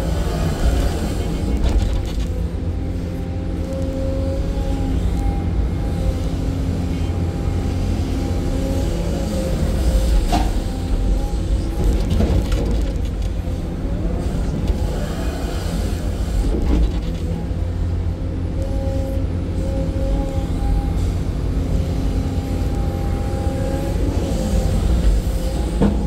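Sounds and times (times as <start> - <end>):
excavator diesel engine rumble: 0.0 - 26.0.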